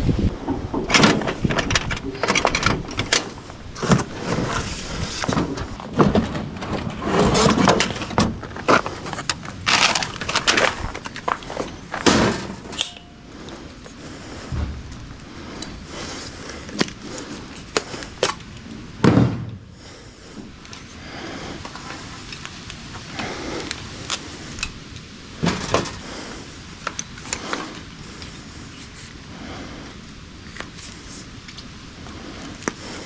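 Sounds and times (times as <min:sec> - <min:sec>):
heavy knocks: 0:14.5 - 0:15.9, 0:19.0 - 0:19.7.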